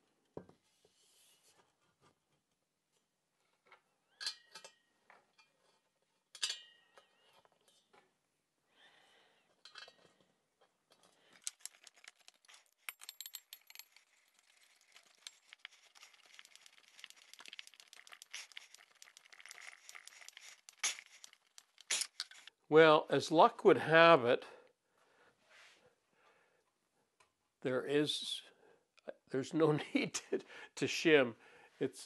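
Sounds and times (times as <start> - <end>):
screws clinking on metal plate: 11.4 - 15.5
screwdriver ticking and scraping: 11.4 - 22.5.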